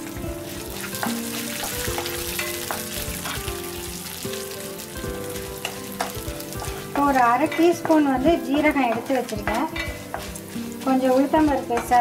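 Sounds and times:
spices sizzling in hot oil: 0.0 - 12.0
wooden spatula scraping wok: 0.5 - 12.0.

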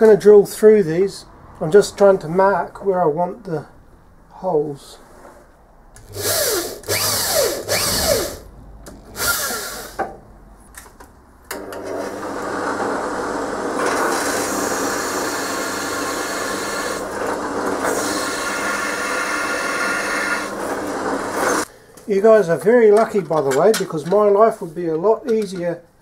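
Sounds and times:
drill cutting metal: 6.0 - 8.4, 9.1 - 10.0, 12.0 - 21.6
electric drill bursts: 6.0 - 8.5, 9.1 - 10.0, 11.6 - 21.7
drill press humming: 6.0 - 10.0, 11.6 - 21.7.

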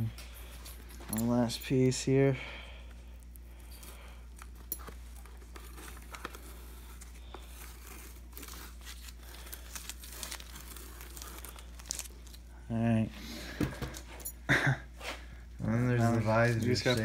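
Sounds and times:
tape peeling and crinkling: 3.0 - 12.6.

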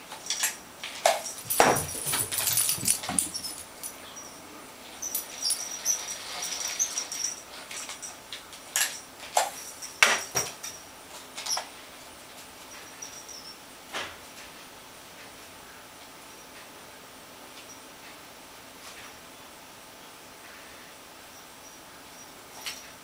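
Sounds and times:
small bell jingling: 0.2 - 4.4, 5.0 - 8.2, 8.8 - 10.9, 12.7 - 13.6.

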